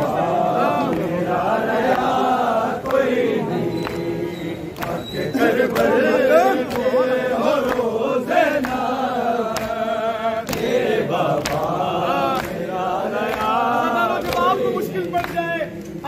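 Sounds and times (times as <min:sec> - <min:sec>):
men chanting a lament: 0:00.0 - 0:16.0
chest-beating slaps: 0:10.4 - 0:12.6.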